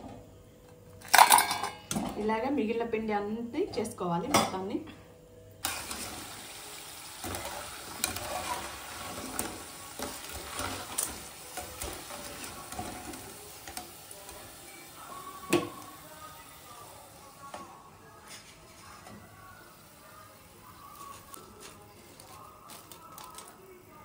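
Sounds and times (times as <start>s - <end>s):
food sizzling in hot oil: 5.6s - 17.5s
knock in pan: 15.5s - 15.8s.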